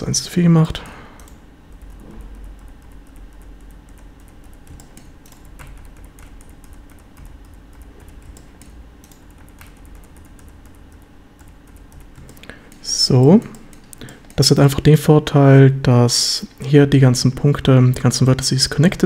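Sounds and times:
steady low hum: 0.0 - 19.0
keyboard keys clicking: 0.7 - 14.4.

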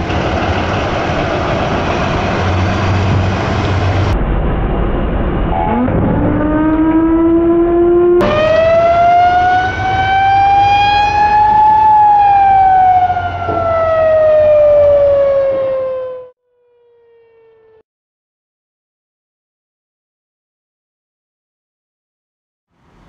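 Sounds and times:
fire engine siren wailing: 5.5 - 17.8.

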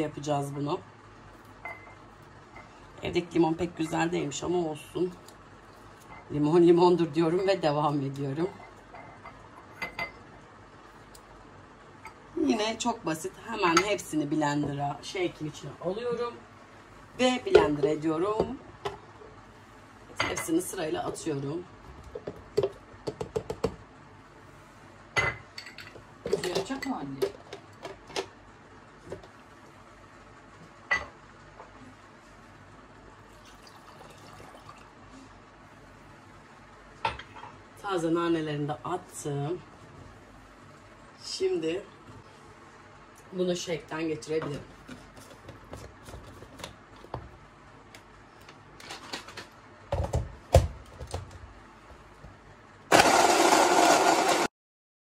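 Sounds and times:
blender motor running: 52.9 - 54.5.

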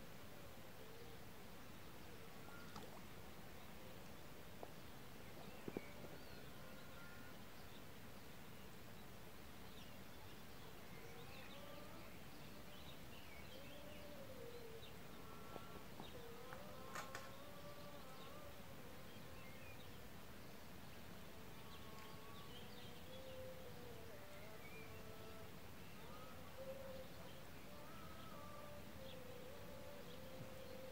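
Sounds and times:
small birds chirping faintly: 0.0 - 30.9
light clicks: 16.5 - 17.4.

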